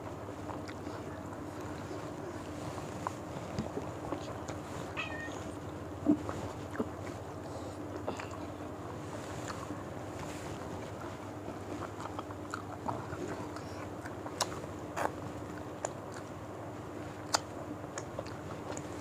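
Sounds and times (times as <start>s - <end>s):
background hiss and hum: 0.0s - 19.0s
chewing mouth sounds: 0.3s - 4.7s, 6.1s - 19.0s
lip smacks: 11.6s - 16.3s, 17.2s - 19.0s.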